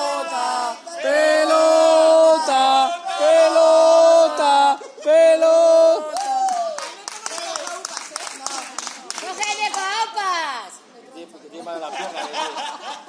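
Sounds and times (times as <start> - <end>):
crowd chanting: 0.0 - 6.2.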